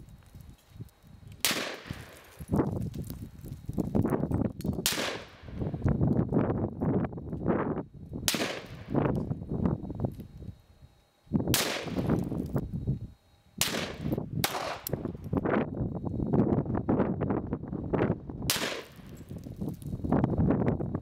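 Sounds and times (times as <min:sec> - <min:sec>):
pistol shots with rumbling tail: 0:01.4 - 0:02.2, 0:04.8 - 0:05.6, 0:08.2 - 0:09.0, 0:11.5 - 0:12.3, 0:13.6 - 0:15.1, 0:18.4 - 0:19.2.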